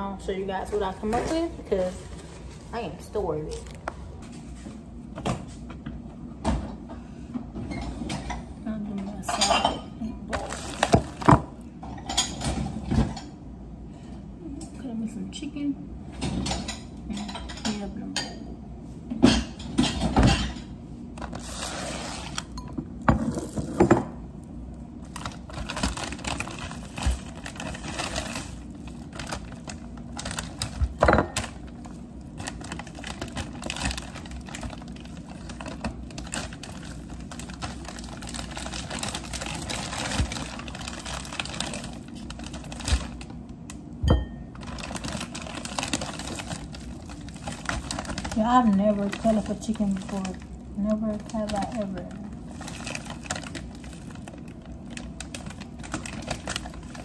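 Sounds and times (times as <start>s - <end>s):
plastic bag rustling: 0.5s - 4.8s, 10.3s - 12.9s, 21.1s - 43.6s, 44.5s - 57.0s.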